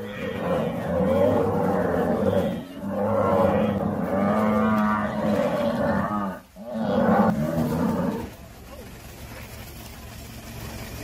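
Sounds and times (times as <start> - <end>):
buffalo bellowing: 0.0 - 8.5.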